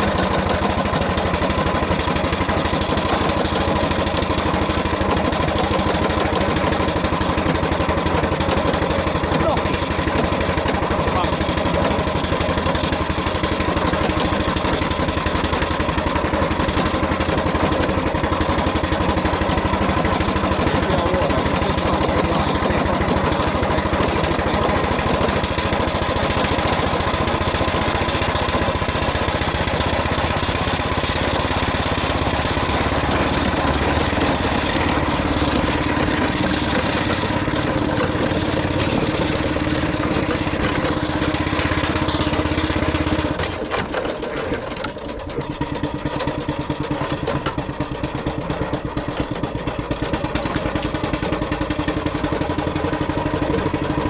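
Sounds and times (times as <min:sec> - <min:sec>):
miniature steam engine running: 0:00.0 - 0:54.0.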